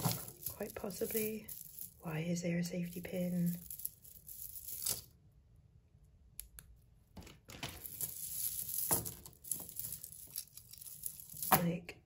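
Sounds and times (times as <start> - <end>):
chain rustling and clicking: 0.0 - 2.1, 2.7 - 5.1, 7.6 - 11.6
necklace beads clicking: 0.0 - 2.1, 2.8 - 5.2, 6.4 - 11.7.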